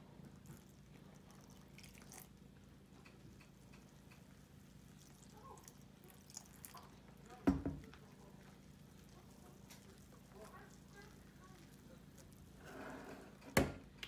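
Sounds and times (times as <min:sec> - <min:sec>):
water pouring: 0:00.4 - 0:02.4.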